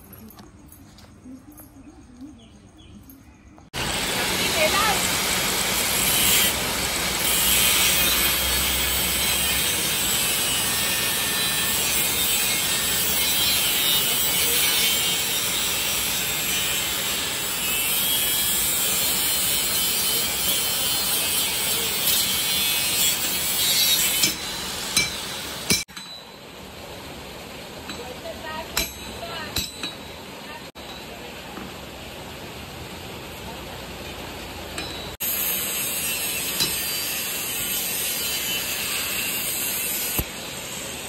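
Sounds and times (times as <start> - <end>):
power tool grinding: 3.8 - 25.9, 35.2 - 40.3.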